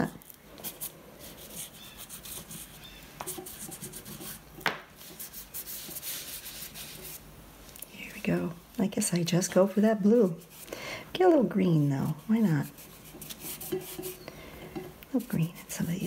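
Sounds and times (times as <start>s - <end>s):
oil pastel scratching on paper: 0.6s - 4.4s, 5.0s - 7.2s, 10.0s - 10.7s, 11.8s - 14.2s, 15.2s - 16.0s.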